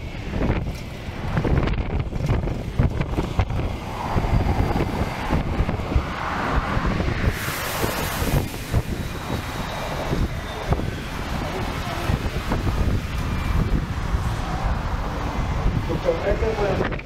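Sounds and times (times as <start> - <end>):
bus rumble: 0.0 - 17.0
traffic: 0.0 - 17.0
wind buffeting microphone: 0.0 - 17.0
burst of hiss: 7.2 - 10.2.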